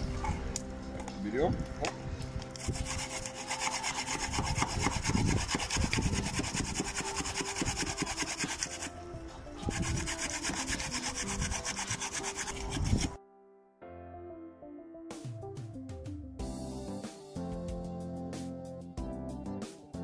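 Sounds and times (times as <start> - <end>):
carrot grated on metal grater: 2.6 - 8.9, 9.7 - 13.2.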